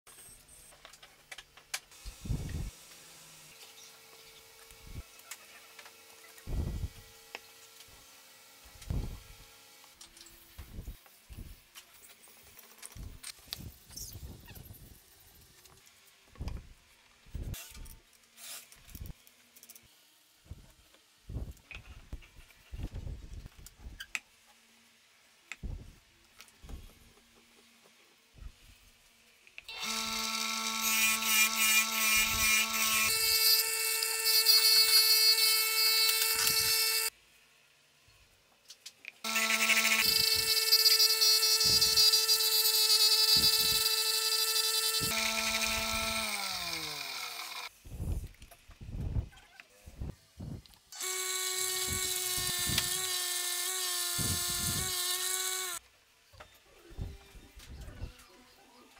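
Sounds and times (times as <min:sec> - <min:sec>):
motor whining: 0:29.7 - 0:37.1, 0:39.3 - 0:48.2, 0:51.0 - 0:55.8
wooden block being sanded: 0:39.3 - 0:47.6, 0:51.1 - 0:55.8.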